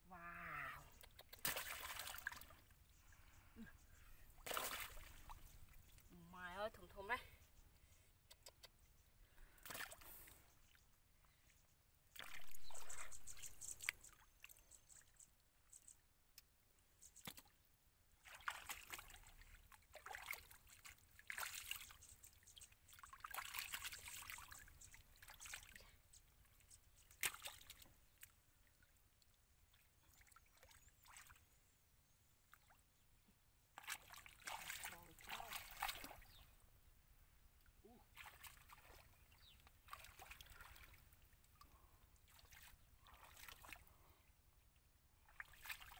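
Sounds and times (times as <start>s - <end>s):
muddy water sloshing and splashing: 0.5s - 7.0s, 9.4s - 10.8s, 12.1s - 14.7s, 18.2s - 31.7s, 33.6s - 36.7s, 37.6s - 44.2s, 44.8s - 45.9s.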